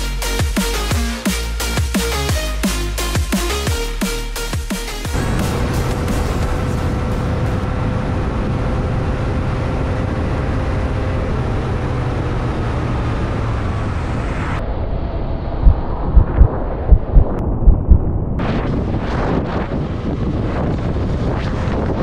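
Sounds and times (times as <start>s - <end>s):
motorcycle engine running: 5.1s - 13.8s
wind and road noise: 5.1s - 22.0s
wind buffeting microphone: 5.2s - 22.0s.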